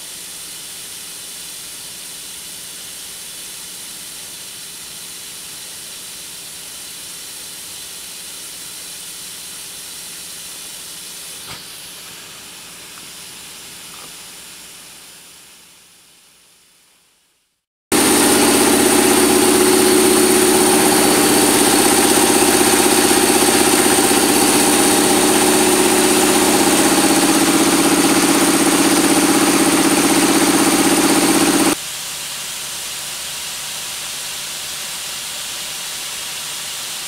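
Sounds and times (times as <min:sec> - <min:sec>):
snow gun spray hissing: 0:00.0 - 0:16.8, 0:17.9 - 0:37.0.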